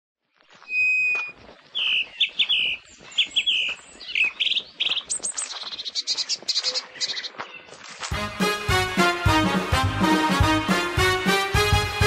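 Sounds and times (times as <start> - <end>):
songbirds chirping and trilling: 0.3 - 9.7.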